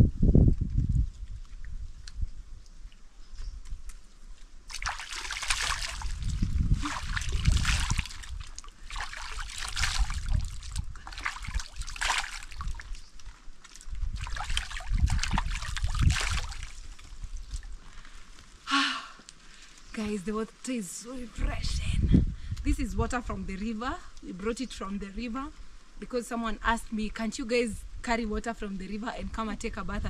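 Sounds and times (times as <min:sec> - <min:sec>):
water pouring into basin: 0:04.7 - 0:13.0, 0:14.1 - 0:16.8
water splashing onto face: 0:04.7 - 0:13.1, 0:13.7 - 0:17.7.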